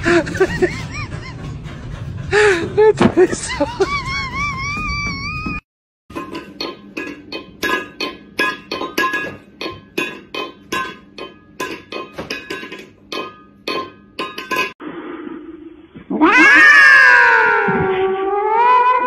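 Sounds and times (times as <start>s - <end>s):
metal bowl clanking on floor: 6.1s - 14.8s
cat yowling: 16.1s - 19.0s.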